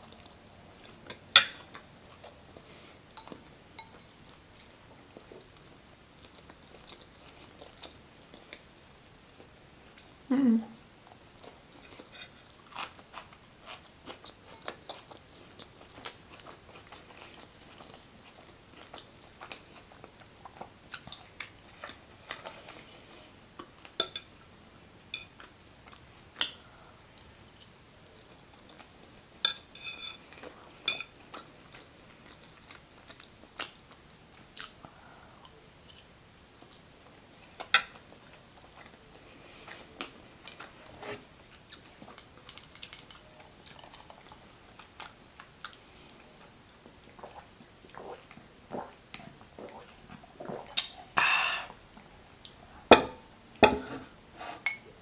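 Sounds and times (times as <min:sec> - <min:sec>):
person chewing: 0:11.4 - 0:22.9
mouth clicks and smacks: 0:50.4 - 0:51.0.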